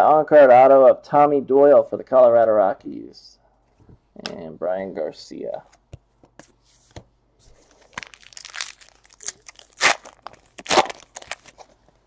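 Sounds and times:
cards rustling and sliding: 0:06.2 - 0:11.8.

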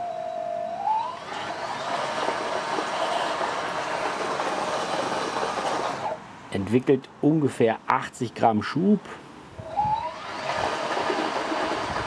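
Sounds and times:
electric motor whine: 0:00.7 - 0:06.2, 0:09.7 - 0:12.0
propeller churning water with bubbles: 0:10.3 - 0:12.0.

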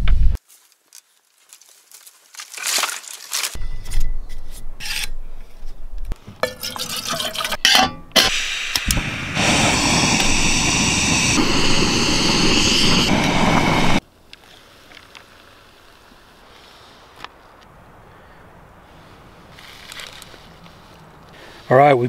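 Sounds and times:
stove burner hissing: 0:08.2 - 0:14.0.

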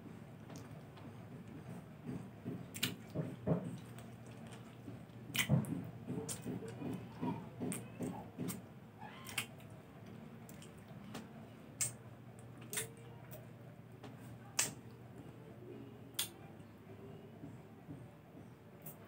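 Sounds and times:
person chewing citrus: 0:00.4 - 0:08.6, 0:09.3 - 0:11.2, 0:11.8 - 0:13.4.

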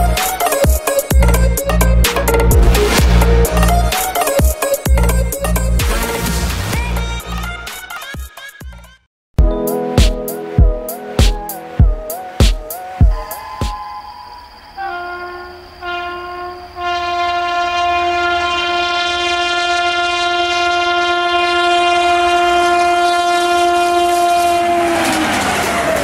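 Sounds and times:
train horn blasts: 0:14.8 - 0:25.9
passing coaches rattling: 0:24.2 - 0:26.0.

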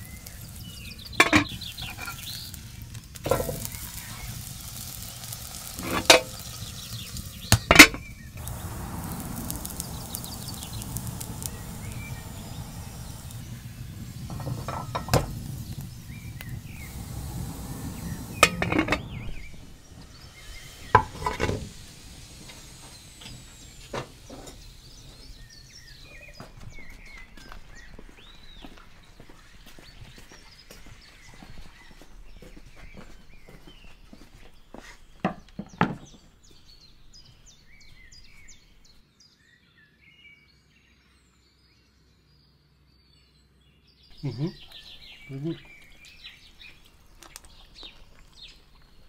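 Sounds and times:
dough sizzling in pot: 0:00.0 - 0:39.0, 0:44.1 - 0:49.0
pot lid clanking: 0:01.2 - 0:02.3, 0:03.2 - 0:04.0, 0:05.7 - 0:06.4, 0:07.5 - 0:08.0, 0:14.3 - 0:15.4, 0:18.3 - 0:19.4, 0:20.9 - 0:21.7.

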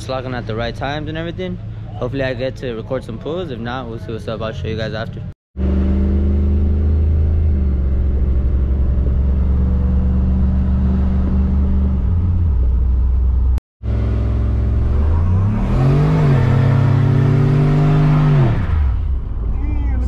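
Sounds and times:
truck engine revving: 0:05.6 - 0:19.5.

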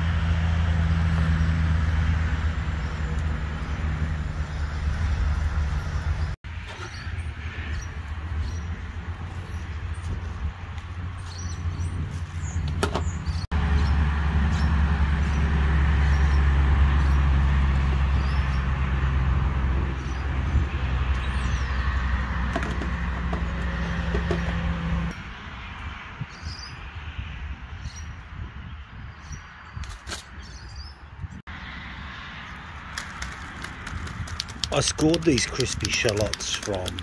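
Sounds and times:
engine humming: 0:00.0 - 0:25.2.

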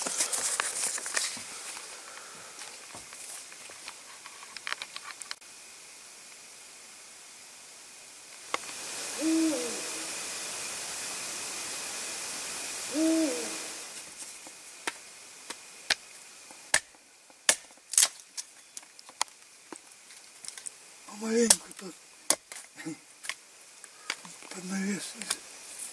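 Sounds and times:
steady hiss: 0:00.0 - 0:25.9
owl hooting: 0:08.7 - 0:14.0, 0:23.9 - 0:24.2.

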